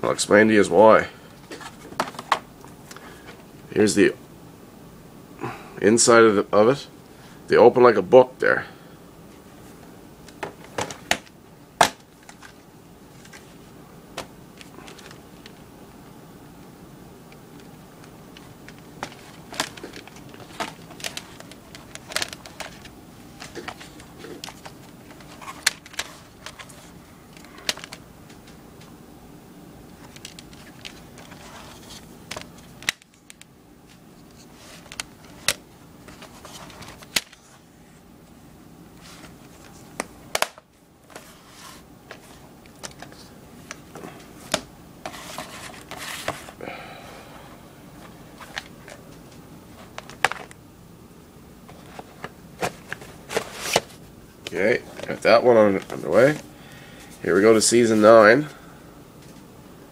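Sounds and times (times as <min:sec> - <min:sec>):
rustling: 0:17.4 - 0:28.9, 0:30.0 - 0:38.1, 0:51.7 - 0:56.5
plastic cases clicking: 0:18.4 - 0:28.0, 0:30.0 - 0:31.6.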